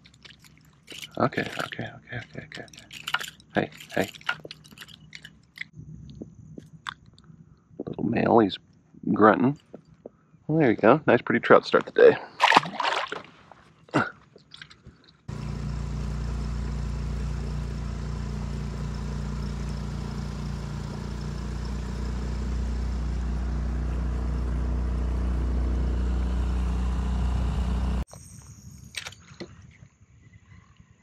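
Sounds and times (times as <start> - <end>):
outboard motor running: 15.3 - 28.0.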